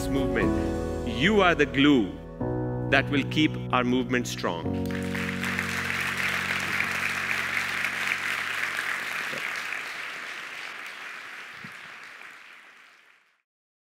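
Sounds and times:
audience applauding: 4.8 - 13.4.

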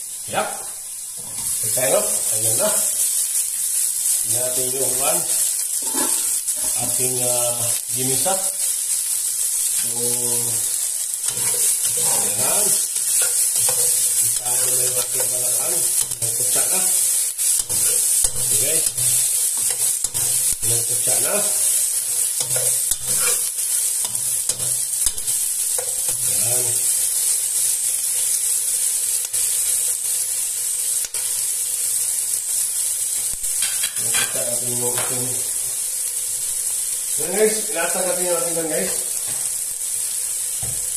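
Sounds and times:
vegetables sizzling in oil: 0.0 - 40.9
metal spoon scraping a pot: 5.8 - 6.8, 11.2 - 16.7, 17.6 - 20.6, 22.1 - 26.3.

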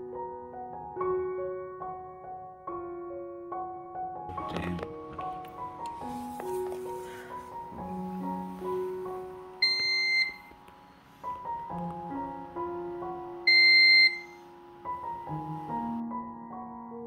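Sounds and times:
soft piano music: 0.0 - 17.0
high electronic warning beeps: 9.6 - 10.5, 13.5 - 14.4.

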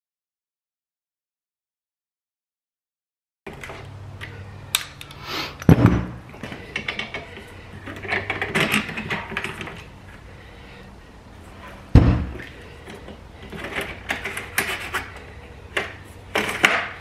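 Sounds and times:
hand tools clicking on metal frame: 6.4 - 9.9, 12.4 - 17.0.

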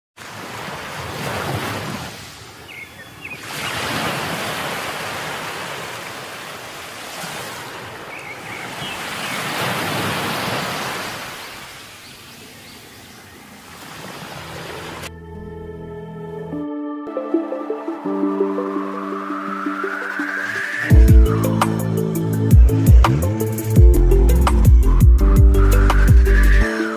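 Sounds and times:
ocean surf breaking: 0.2 - 2.7, 3.4 - 12.1, 13.7 - 15.1, 17.1 - 21.6.

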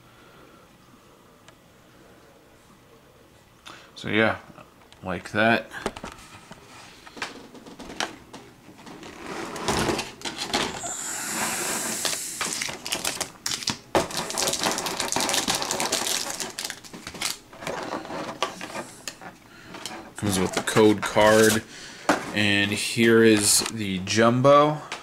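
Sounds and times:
plastic tray crackling: 12.0 - 19.2.

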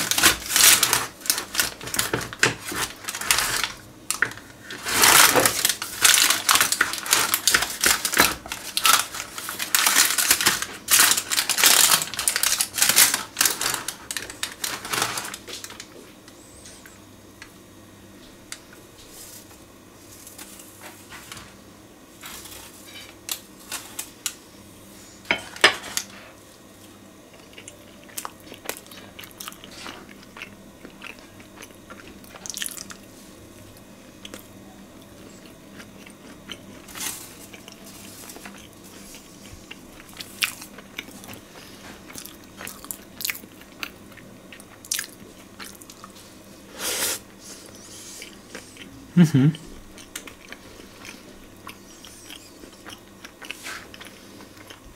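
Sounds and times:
knife crunching through crust: 0.0 - 3.8.

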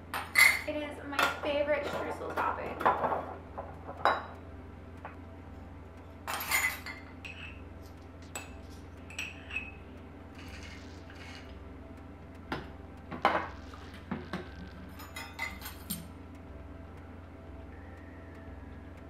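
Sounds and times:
low steady hum: 0.0 - 19.0
glass jars clinking: 0.1 - 4.4, 6.3 - 7.6, 9.1 - 9.8, 10.4 - 11.5, 12.6 - 16.1.

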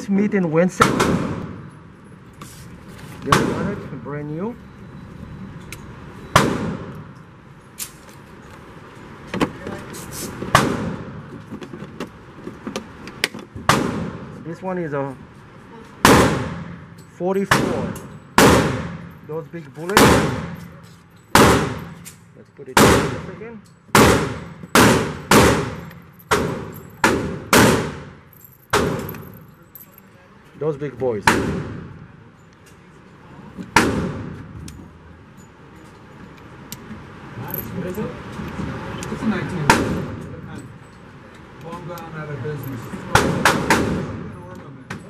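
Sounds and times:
echoing gunshots: 0.8 - 1.7, 6.4 - 7.0, 10.5 - 11.2, 13.7 - 14.3, 16.0 - 16.8, 17.5 - 19.1, 20.0 - 20.6, 21.3 - 22.0, 22.8 - 29.1, 31.3 - 31.9, 33.8 - 34.4, 43.2 - 44.3
handling clicks and knocks: 11.3 - 13.6, 28.3 - 30.1.

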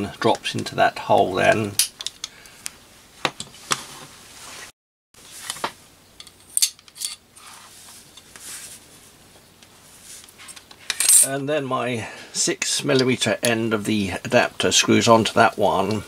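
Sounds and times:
soft rubbing: 3.6 - 5.5, 7.3 - 10.6
metal parts clinking: 6.2 - 7.2, 10.5 - 11.3.

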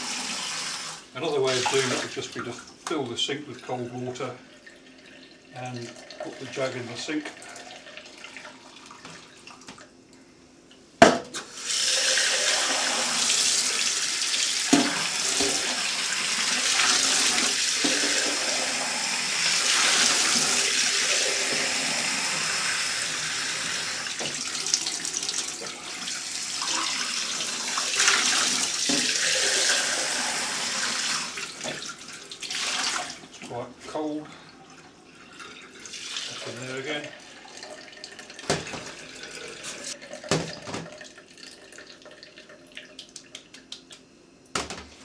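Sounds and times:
tap water running into sink: 1.4 - 3.2, 11.5 - 33.3, 35.2 - 43.7.

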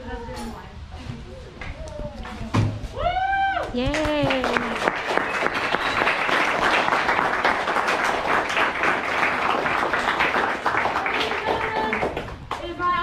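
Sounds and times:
crowd applauding: 3.9 - 12.6.

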